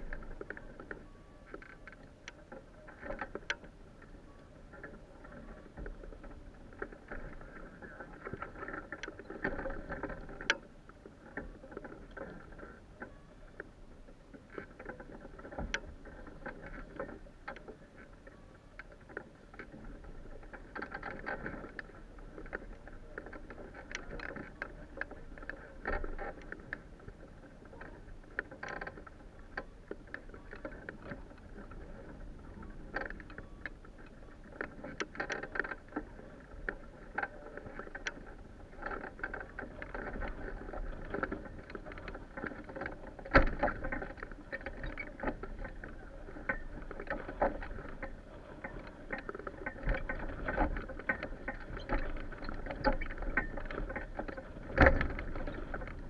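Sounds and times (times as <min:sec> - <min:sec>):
sail fabric flapping in wind: 0:00.0 - 0:56.0
frame and fittings clicking: 0:14.4 - 0:56.0.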